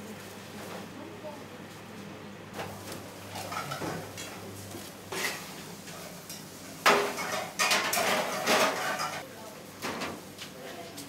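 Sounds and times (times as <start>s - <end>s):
pots and pans clattering: 2.6s - 4.4s, 5.1s - 9.2s.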